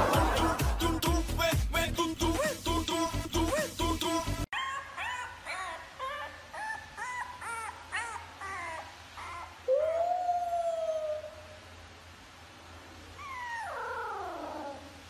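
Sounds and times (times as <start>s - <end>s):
puppy howling: 4.5s - 11.6s, 13.2s - 15.0s
puppy whining yips: 4.6s - 11.2s, 13.2s - 14.9s.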